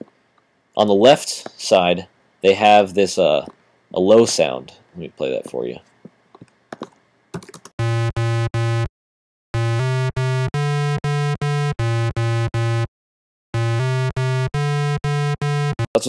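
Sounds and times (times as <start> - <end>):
synthesizer playing short repeated notes: 7.8 - 8.9, 9.6 - 12.9, 13.6 - 16.0.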